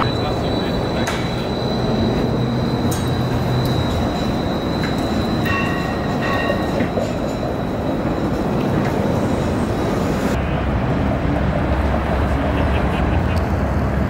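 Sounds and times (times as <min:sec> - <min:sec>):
high whine: 0:00.0 - 0:10.5
streetcar running on rails: 0:00.0 - 0:14.0.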